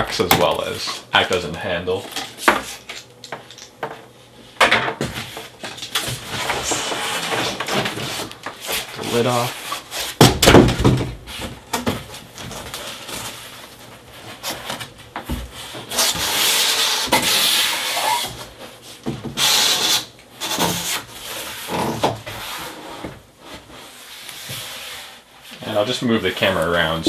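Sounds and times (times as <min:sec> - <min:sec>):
cardboard flaps scraping: 0:05.1 - 0:10.2.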